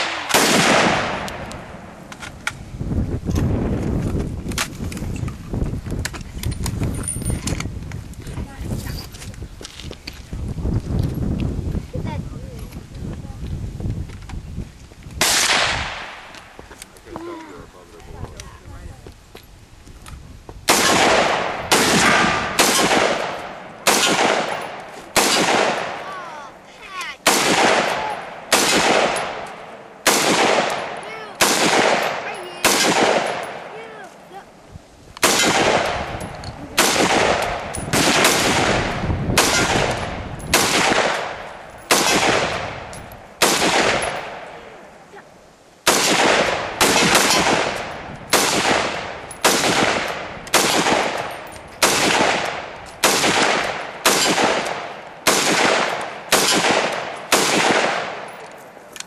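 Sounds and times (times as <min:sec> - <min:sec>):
gunshots with ringing echo: 0:00.0 - 0:02.1, 0:15.2 - 0:16.3, 0:20.7 - 0:26.6, 0:27.2 - 0:34.0, 0:35.2 - 0:44.8, 0:45.8 - 0:58.5.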